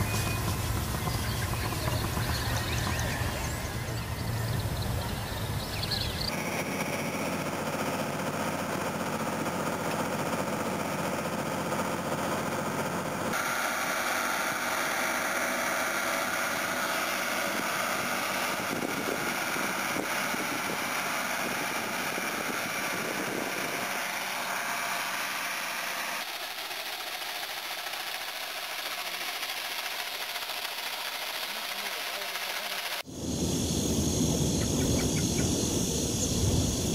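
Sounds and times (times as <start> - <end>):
tractor engine running: 0.0 - 33.1
vehicle engine running: 0.0 - 33.1
fertiliser spreader hiss: 13.3 - 34.7.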